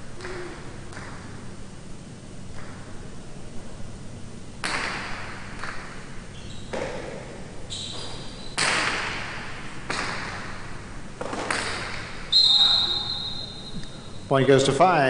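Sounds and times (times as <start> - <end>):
ball cracking against walls: 0.2 - 1.4, 4.6 - 12.3.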